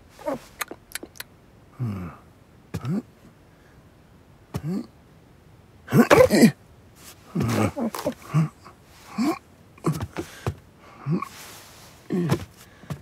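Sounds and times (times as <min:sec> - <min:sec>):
cartoon man grunting and gasping: 0:01.7 - 0:03.1, 0:04.6 - 0:05.0, 0:05.9 - 0:06.6, 0:07.3 - 0:11.4, 0:12.1 - 0:13.0.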